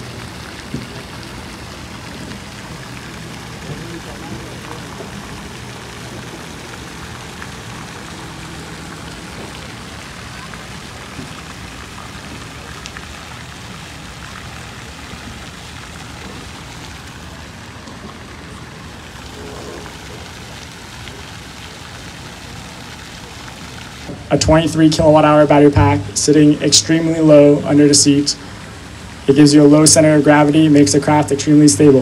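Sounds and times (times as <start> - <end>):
steady hiss like spray on water: 0.0 - 32.0
faint voices: 0.8 - 15.2.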